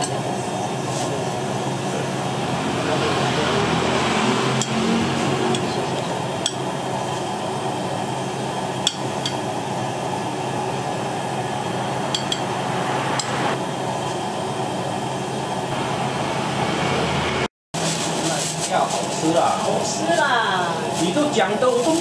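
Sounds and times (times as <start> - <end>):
steady background noise: 0.0 - 22.0
utensils tapping dishes: 4.6 - 4.9, 8.8 - 9.4, 12.1 - 12.5.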